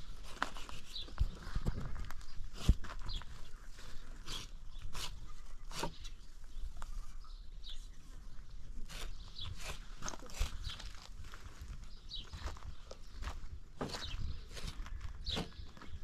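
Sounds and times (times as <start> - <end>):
small birds chirping: 0.1 - 16.0
knife scraping hide: 4.2 - 6.2, 8.8 - 10.8.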